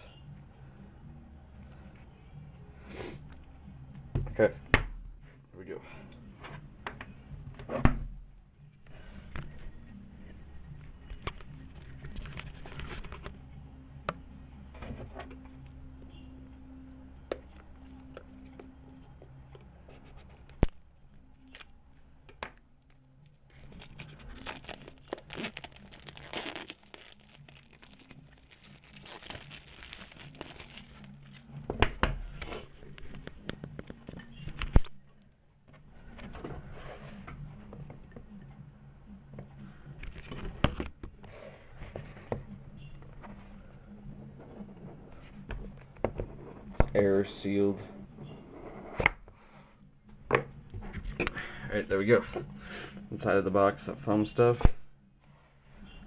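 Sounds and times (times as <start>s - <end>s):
plastic wrapping crinkling and tearing: 20.3s - 21.8s, 22.9s - 31.5s.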